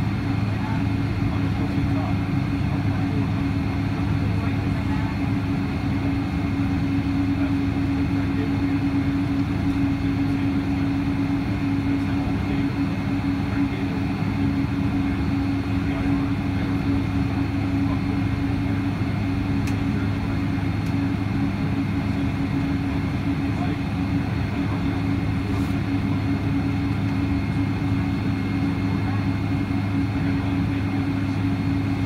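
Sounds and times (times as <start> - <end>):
aircraft cabin engine hum: 0.0 - 32.0.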